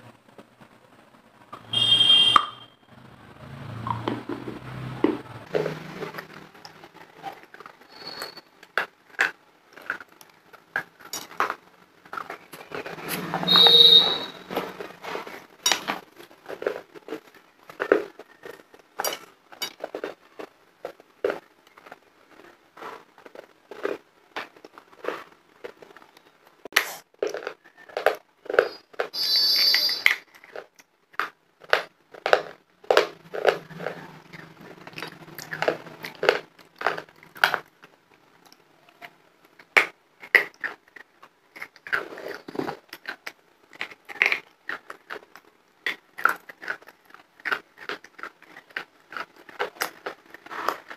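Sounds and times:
crunching hard candy: 4.0s - 50.9s.

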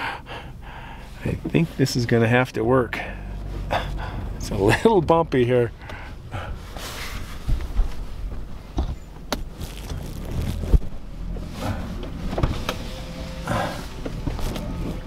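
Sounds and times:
engine and road rumble: 0.0s - 15.0s
car knocks and rattles over bumps: 3.4s - 15.0s.

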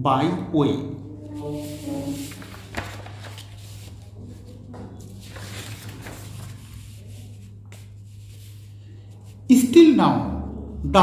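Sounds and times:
low electrical hum: 0.0s - 11.0s
paper rustling: 1.2s - 9.4s.

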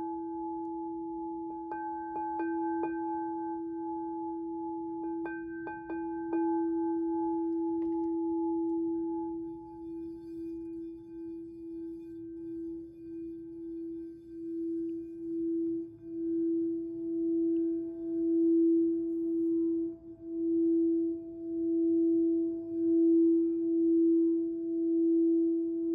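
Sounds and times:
singing bowl ringing: 0.0s - 25.4s.

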